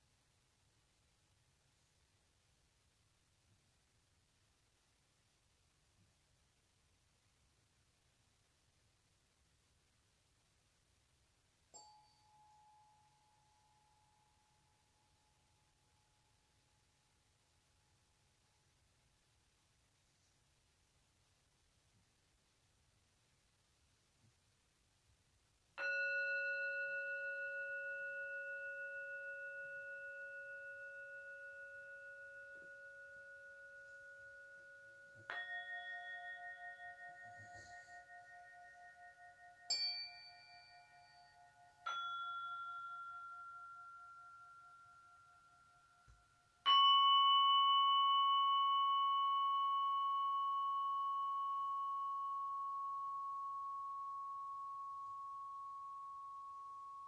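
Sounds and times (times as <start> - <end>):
struck metal bell tones: 25.8 - 57.0.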